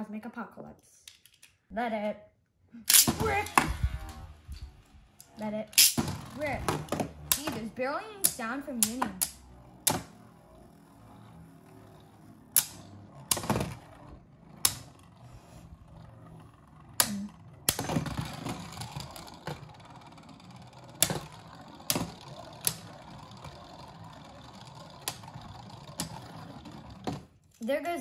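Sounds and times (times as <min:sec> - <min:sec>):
spinning tops clacking together: 0:02.9 - 0:15.0
spinning tops whirring on plastic: 0:02.9 - 0:27.7.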